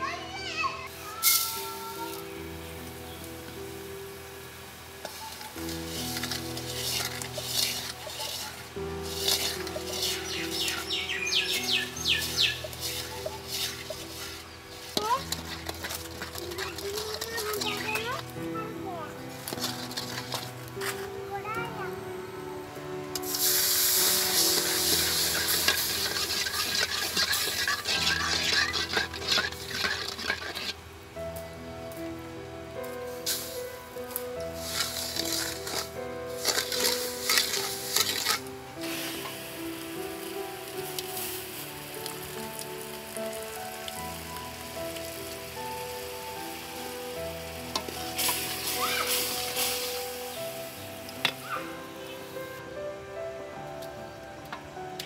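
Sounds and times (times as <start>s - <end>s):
background music with held notes: 0.0s - 55.0s
liquid sizzling in a wok: 0.6s - 21.2s, 23.0s - 31.4s, 32.8s - 52.8s
syrup boiling with crackling bubbles: 0.9s - 21.1s, 23.1s - 31.4s, 33.1s - 51.4s
metal spatula scraping: 5.0s - 18.3s, 19.4s - 21.1s, 23.2s - 30.8s, 34.6s - 39.4s, 47.7s - 50.1s.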